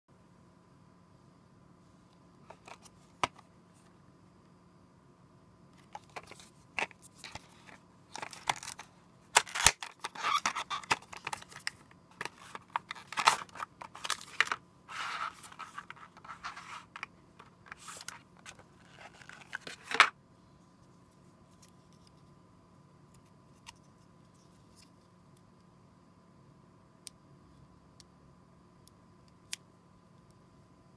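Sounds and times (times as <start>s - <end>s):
cardboard and plastic packaging rustling: 5.8s - 20.1s.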